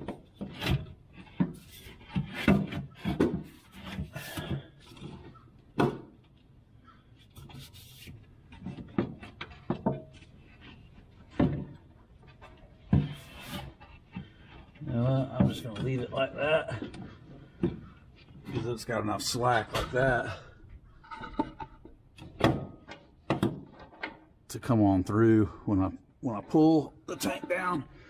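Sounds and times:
tube rubbing and scraping: 0:00.0 - 0:05.5, 0:07.2 - 0:11.3, 0:12.2 - 0:16.2.

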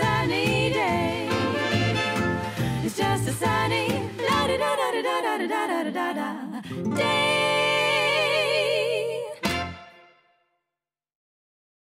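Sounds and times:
person singing: 0:00.0 - 0:09.5.

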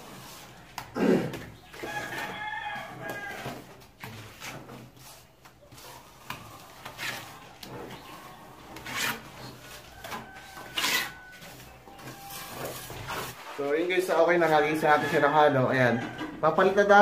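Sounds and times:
trowel scraping cement: 0:00.0 - 0:13.5.

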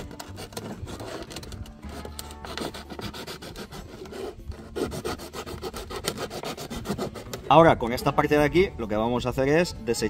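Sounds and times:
knife sawing through plastic: 0:00.0 - 0:07.6.

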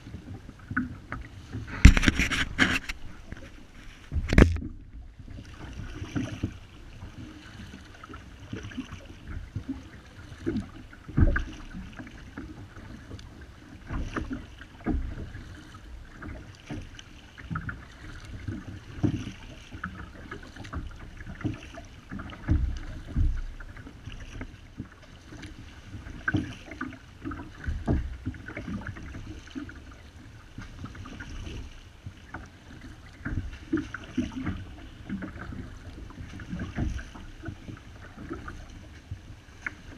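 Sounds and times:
paddle strokes splashing: 0:00.0 - 0:39.9
water moving along hull: 0:00.0 - 0:39.9
low knocks: 0:01.7 - 0:05.4.

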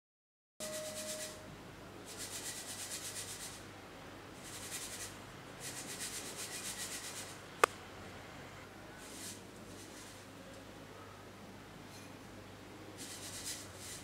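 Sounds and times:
sieve mesh scratching: 0:02.1 - 0:03.6, 0:04.4 - 0:07.4, 0:09.0 - 0:10.3, 0:13.0 - 0:14.0.

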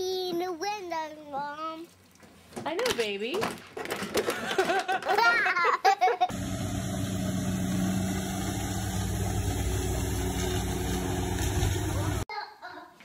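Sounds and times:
motorboat engine droning: 0:06.3 - 0:12.2.

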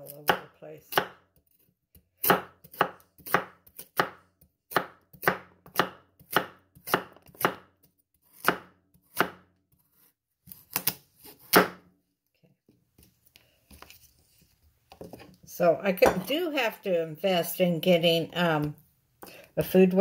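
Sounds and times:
knife chopping on cutting board: 0:00.2 - 0:01.2, 0:02.2 - 0:07.7, 0:08.3 - 0:11.8.

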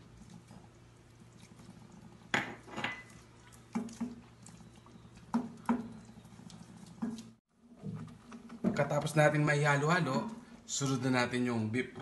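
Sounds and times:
spatula stirring thick stew: 0:03.1 - 0:07.4.

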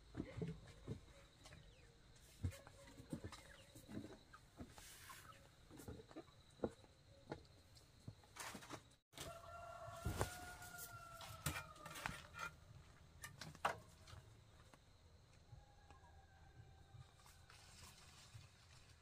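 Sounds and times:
rooster crowing: 0:09.2 - 0:12.3.

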